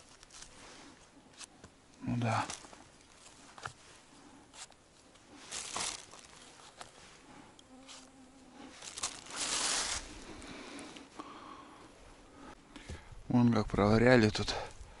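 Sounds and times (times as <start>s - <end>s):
rustles and crunches in leaf litter: 0.0s - 7.2s, 7.9s - 10.6s
insect buzzing: 5.6s - 10.8s.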